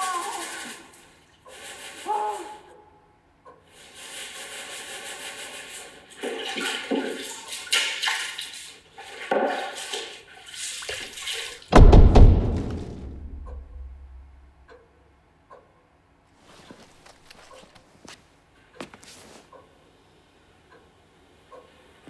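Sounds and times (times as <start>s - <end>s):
cloth sloshing in water: 6.2s - 11.7s.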